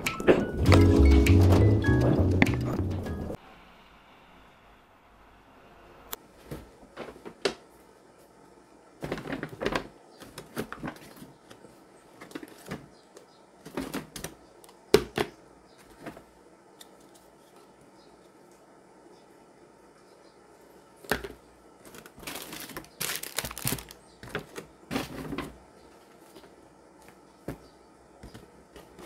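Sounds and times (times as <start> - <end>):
small objects clicking and knocking: 22.0 - 25.2.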